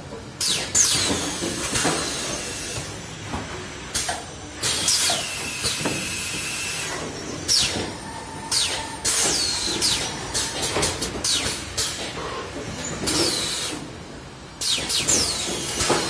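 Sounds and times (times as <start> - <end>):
pneumatic hissing bursts: 0.4 - 12.5.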